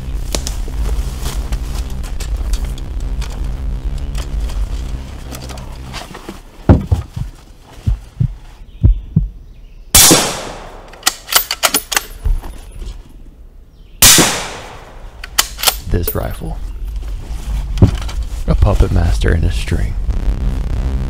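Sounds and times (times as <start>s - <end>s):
deep heartbeat-like thumps: 6.6s - 9.4s, 20.0s - 21.0s
suppressed rifle shot: 10.0s - 11.5s, 14.0s - 15.8s
sharp metallic clicks: 10.5s - 12.2s, 14.1s - 16.4s.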